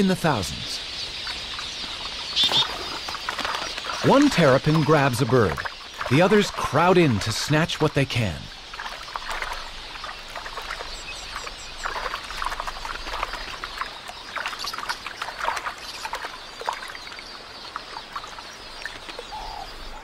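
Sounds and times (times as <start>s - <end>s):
water splashing: 0.0s - 20.0s.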